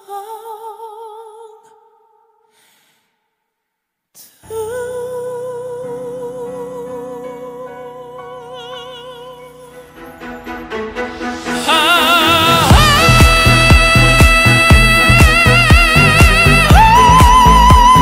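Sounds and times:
band sustained chords: 7.5s - 18.0s
man singing with vibrato: 11.6s - 18.0s.

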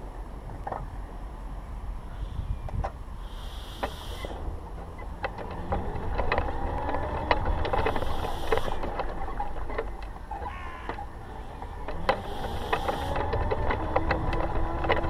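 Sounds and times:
wind buffeting microphone: 1.8s - 3.2s, 11.1s - 15.0s
short hissing bursts: 3.2s - 4.4s.

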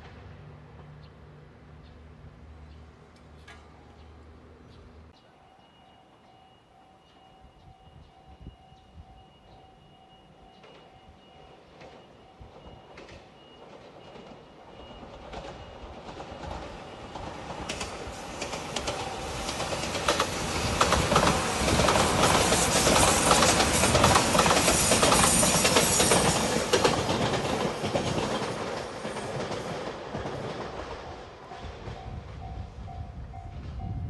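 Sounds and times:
train rumbling past: 0.0s - 34.0s
train wheels clacking over rail joints: 11.8s - 32.0s.

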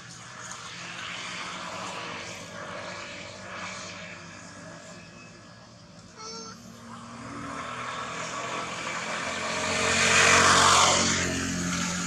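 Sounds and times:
motor vehicle passing by: 0.0s - 12.0s.

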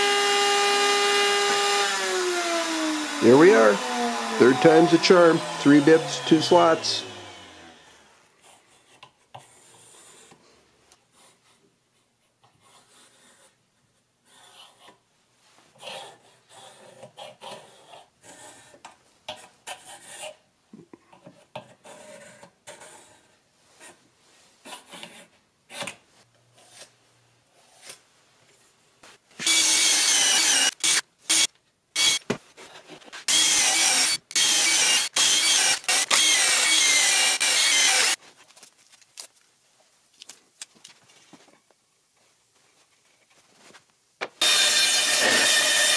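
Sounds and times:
power drill boring into wood: 0.0s - 8.1s, 29.4s - 32.2s, 33.3s - 38.2s, 44.4s - 45.9s
pencil scratching on wood: 8.4s - 10.4s, 11.1s - 13.6s, 14.2s - 15.0s, 15.7s - 20.4s, 21.2s - 24.0s, 24.6s - 25.9s.

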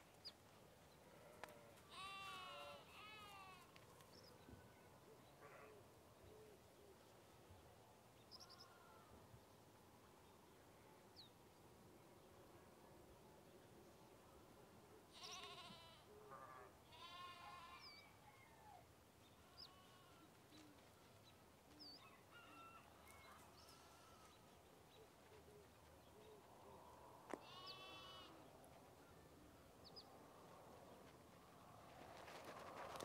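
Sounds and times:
faint animal bleating: 1.1s - 3.8s, 8.4s - 9.2s, 15.1s - 18.1s, 19.4s - 20.4s, 23.3s - 24.4s, 27.3s - 28.5s.

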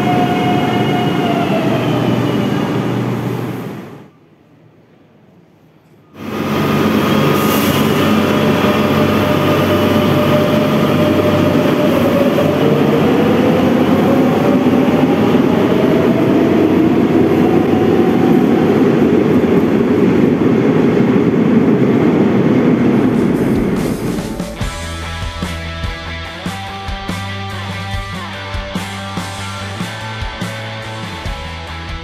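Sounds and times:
train traction motor whine: 0.0s - 4.2s, 6.2s - 25.3s
wheels rumbling on rail: 0.0s - 4.7s, 6.1s - 25.7s.

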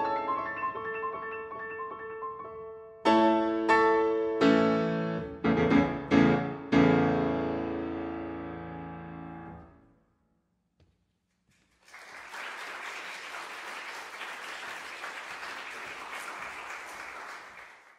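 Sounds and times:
audience applauding: 11.5s - 17.9s.

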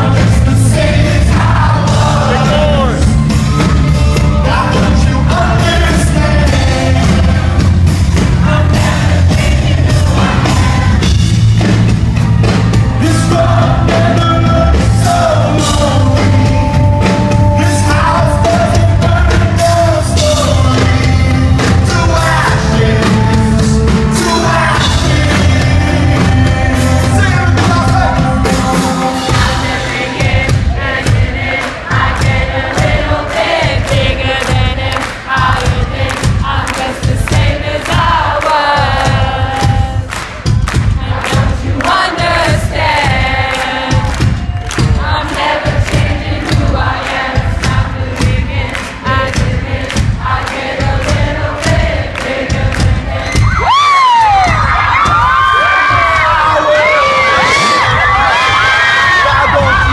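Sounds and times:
man singing into microphone: 0.0s - 3.2s, 4.0s - 7.5s, 13.0s - 30.4s, 55.5s - 59.9s
live rock band playing: 0.0s - 33.9s.

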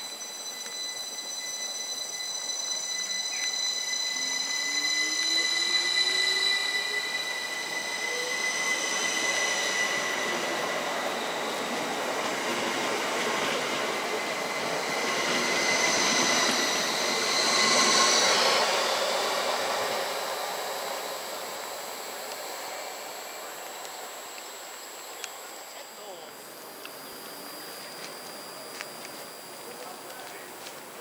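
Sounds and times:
wheel squeal: 0.0s - 25.8s
electric train traction whine: 0.0s - 31.0s
wheel-on-rail noise: 0.0s - 31.0s.

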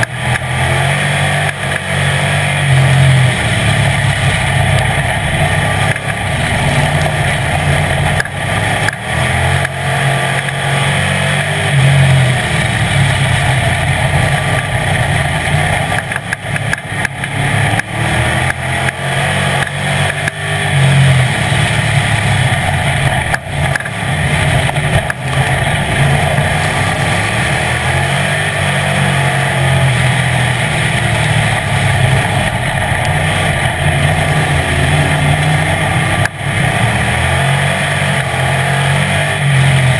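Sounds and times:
race car engine revving: 0.0s - 39.9s
car knocks and rattles: 12.6s - 19.0s, 21.3s - 28.4s.

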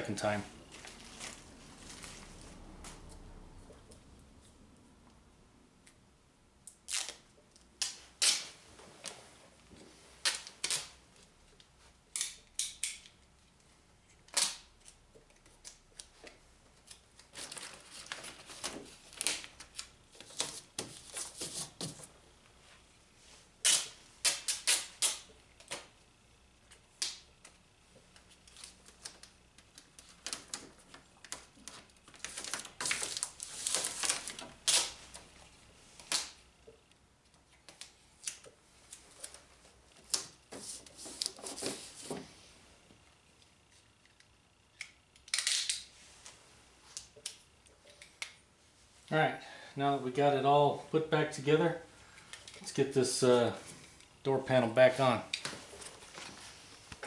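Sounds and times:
plastic sheet crinkling: 28.5s - 35.3s.

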